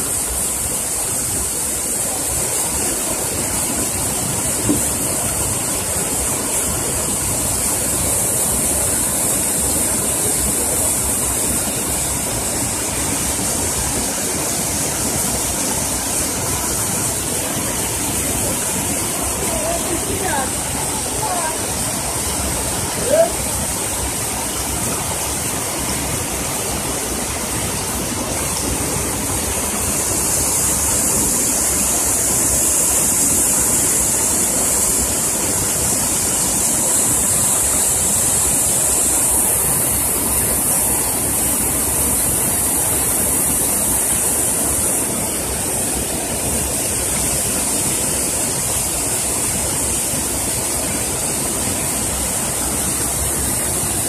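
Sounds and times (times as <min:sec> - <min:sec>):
water rushing down rocks: 0:00.0 - 0:54.0.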